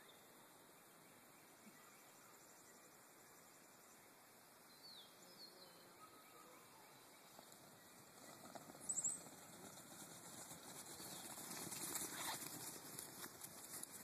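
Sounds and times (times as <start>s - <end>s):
sheep hooves pattering on grass: 7.2s - 14.0s.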